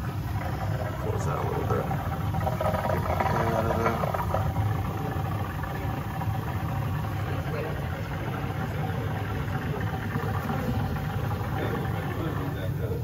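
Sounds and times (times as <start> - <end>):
water rushing into bucket: 0.0 - 13.0.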